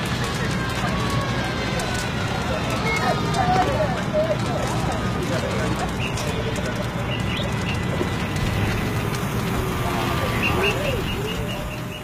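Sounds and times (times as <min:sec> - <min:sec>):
outdoor background noise: 0:00.0 - 0:12.0
birds calling: 0:10.2 - 0:12.0.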